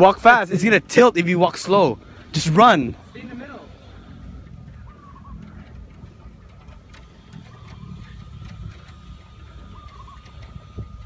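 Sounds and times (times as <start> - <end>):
footsteps on wooden planks: 5.2 - 11.0.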